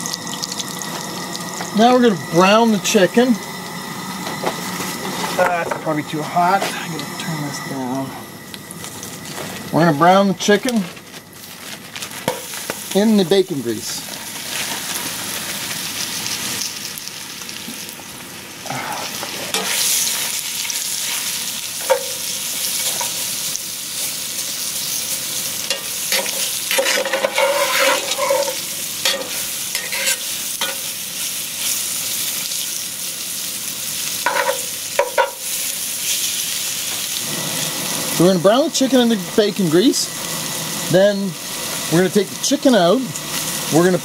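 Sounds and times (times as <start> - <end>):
chicken sizzling in grease: 0.0 - 44.0
metal spatula scraping pot: 26.1 - 30.2.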